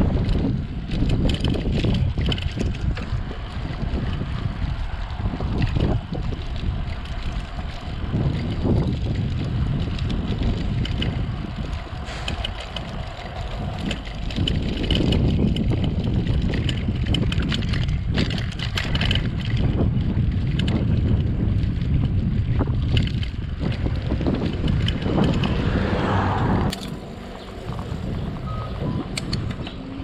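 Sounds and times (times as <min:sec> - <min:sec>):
wind buffeting microphone: 0:00.0 - 0:30.0
clicks and rattles: 0:00.2 - 0:03.2, 0:09.8 - 0:19.7.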